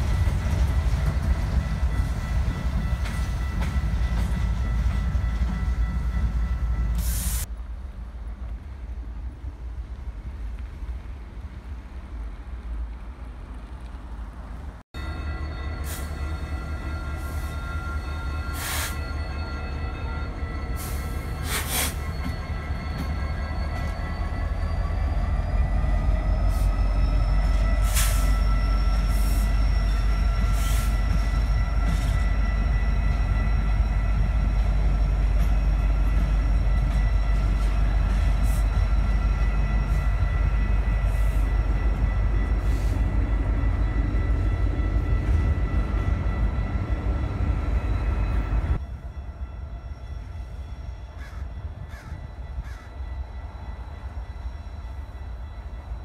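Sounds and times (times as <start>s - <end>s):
freight train rumble: 0.0s - 56.0s.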